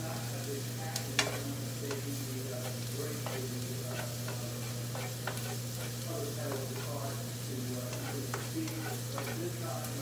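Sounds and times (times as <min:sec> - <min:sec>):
garlic sizzling in a pan: 0:00.0 - 0:10.0
utensil scraping and tapping pan: 0:01.1 - 0:07.0, 0:07.9 - 0:09.5.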